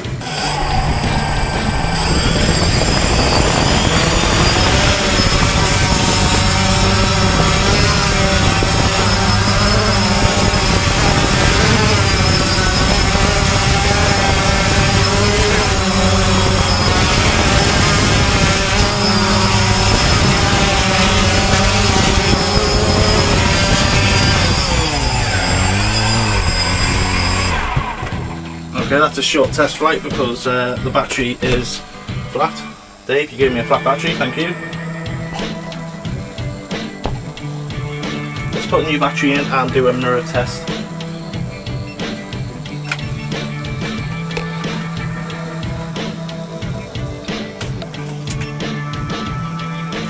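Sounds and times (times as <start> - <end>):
drone motors buzzing: 0.0 - 50.0.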